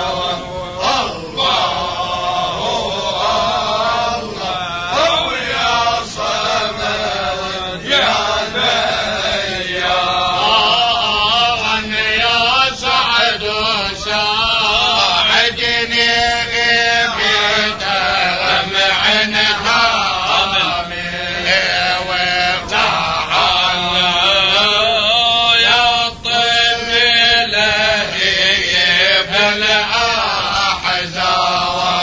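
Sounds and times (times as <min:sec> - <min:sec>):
men chanting: 0:00.0 - 0:32.0.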